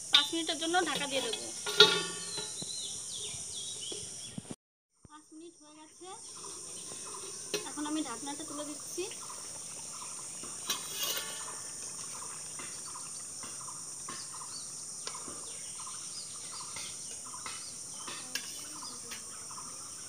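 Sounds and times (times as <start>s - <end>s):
metal lid and spatula clinking on wok: 0.1s - 2.6s, 10.6s - 11.7s, 18.1s - 19.2s
bird chirps: 2.2s - 4.5s.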